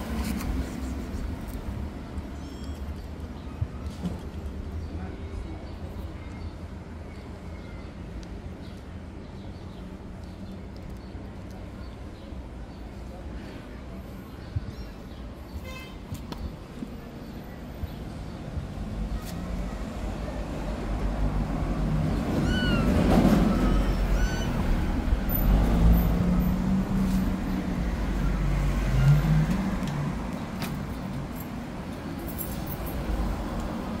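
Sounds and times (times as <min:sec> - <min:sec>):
passing motor vehicle rumble: 0:18.1 - 0:34.0
kitten mewing: 0:22.4 - 0:24.9.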